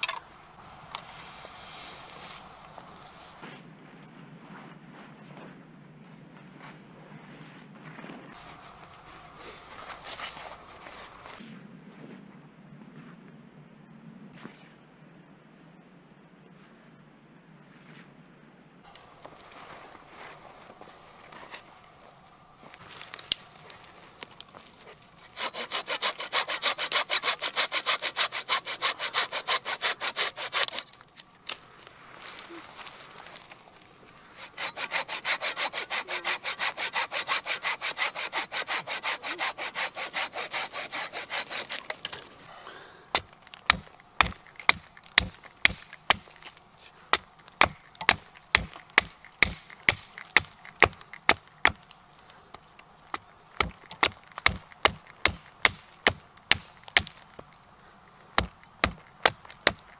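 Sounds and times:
hand saw cutting branch: 23.1s - 31.0s, 34.3s - 42.4s, 43.1s - 51.9s, 53.1s - 57.2s, 58.4s - 59.9s
hatchet chopping wood: 43.1s - 51.9s, 53.1s - 57.4s, 58.4s - 59.9s.

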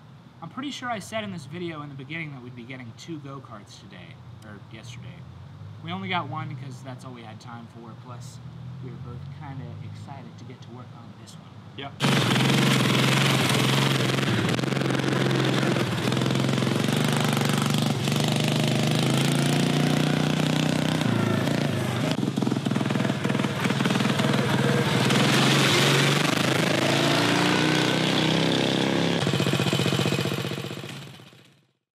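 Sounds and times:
go-kart engine running: 12.0s - 31.6s.

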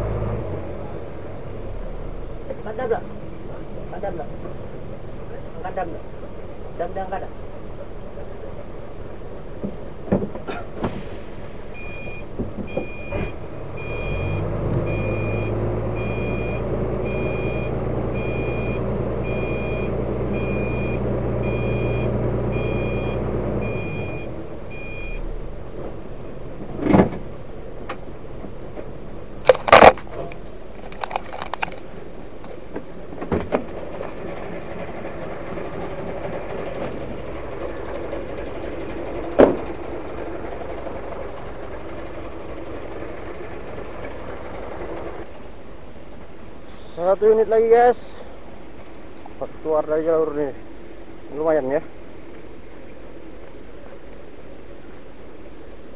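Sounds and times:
diesel truck engine running: 0.0s - 54.0s
reversing beeper: 11.7s - 25.3s.

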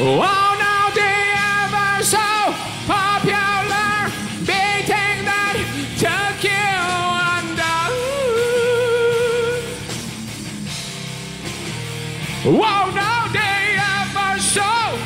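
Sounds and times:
man singing drawn-out notes: 0.0s - 9.7s, 12.4s - 15.0s.

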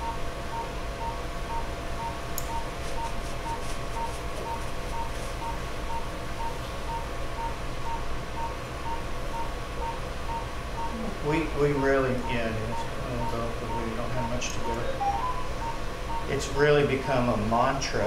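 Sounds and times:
patient monitor beeping: 0.0s - 17.3s
steady equipment hum: 0.0s - 18.0s.

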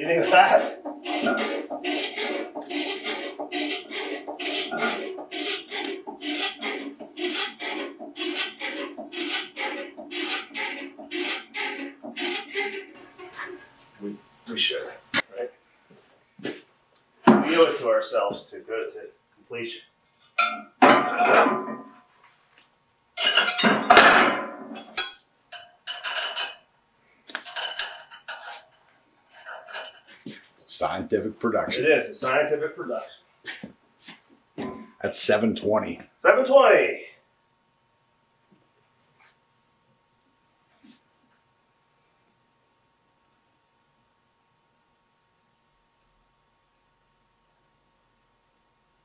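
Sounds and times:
metal weight plates clanking: 0.1s - 12.9s
pallet jack handle pumping: 0.2s - 13.6s.

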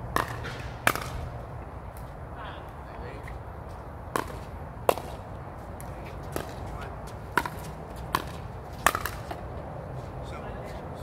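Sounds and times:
ball bouncing on court: 0.1s - 1.3s, 4.1s - 5.2s, 6.3s - 9.4s.

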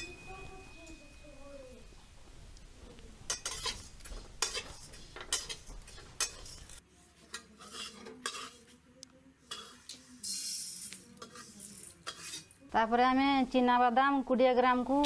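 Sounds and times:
metal spatula scraping a pan: 3.3s - 8.8s, 9.4s - 12.7s.

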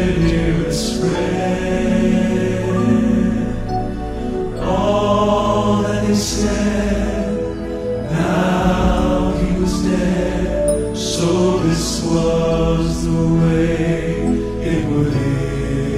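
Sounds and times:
male quartet singing harmony: 0.0s - 15.9s.

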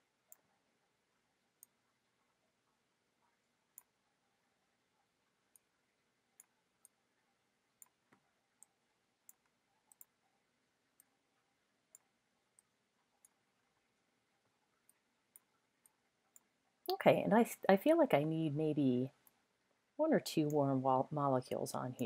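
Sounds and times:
computer mouse clicks: 0.3s - 0.5s, 6.4s - 7.0s, 7.8s - 10.2s.

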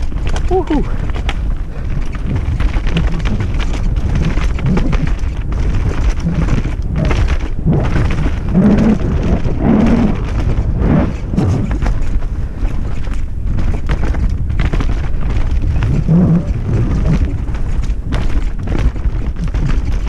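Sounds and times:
bike rattling over rough ground: 0.0s - 20.0s
constant low rumble: 0.0s - 20.0s
wind buffeting microphone: 0.0s - 20.0s.

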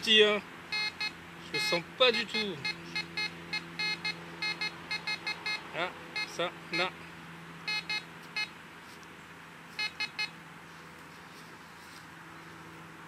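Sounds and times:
metal detector short beeps: 0.7s - 5.6s, 6.2s - 6.9s, 7.7s - 8.5s, 9.8s - 10.4s.

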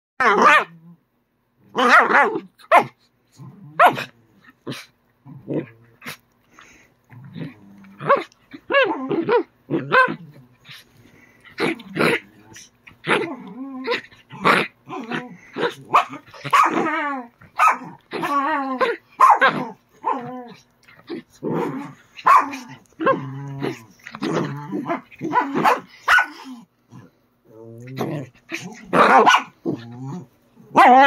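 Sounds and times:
small dog barking: 0.2s - 0.8s, 1.8s - 3.0s, 3.8s - 4.1s, 15.6s - 16.9s, 17.5s - 20.2s, 22.2s - 23.2s, 24.8s - 26.5s, 28.9s - 29.6s, 30.7s - 31.0s
small dog growling: 3.3s - 31.0s.

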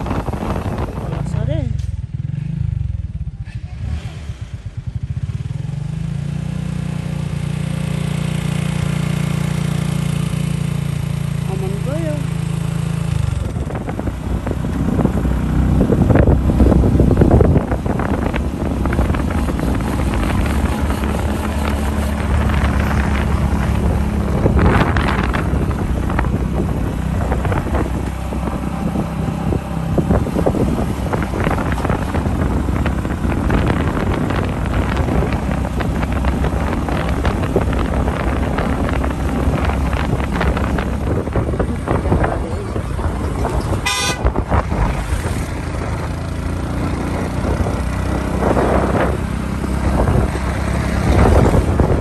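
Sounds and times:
wind buffeting microphone: 0.0s - 6.0s, 7.2s - 52.0s
motorcycle engine rumble: 0.0s - 52.0s.

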